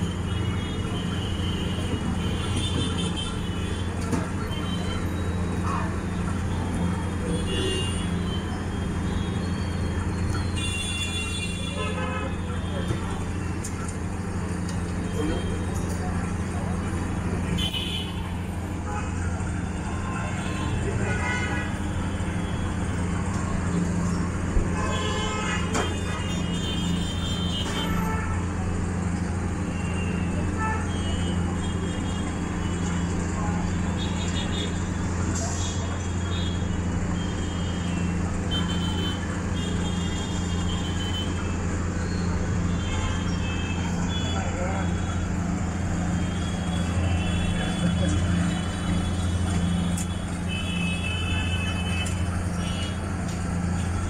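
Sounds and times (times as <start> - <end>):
street traffic rumble: 0.0 - 54.0
vehicle horn: 24.8 - 28.4.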